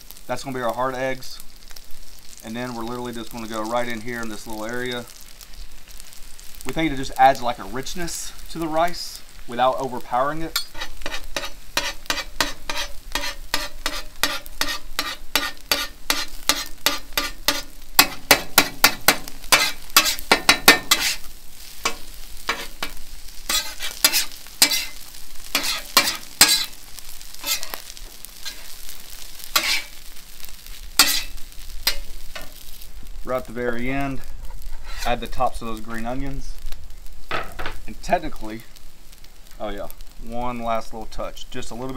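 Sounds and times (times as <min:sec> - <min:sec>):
eggs sizzling: 0:00.0 - 0:41.9
metal spatula clacking on griddle: 0:10.5 - 0:21.2, 0:21.8 - 0:26.8, 0:27.4 - 0:28.8, 0:29.6 - 0:29.9, 0:31.0 - 0:32.6.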